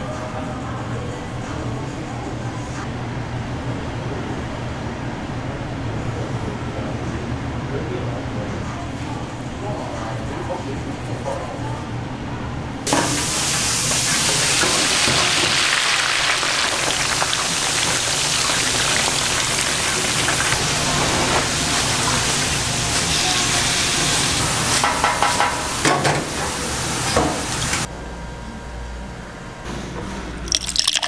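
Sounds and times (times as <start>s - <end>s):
food sizzling: 12.9s - 27.9s.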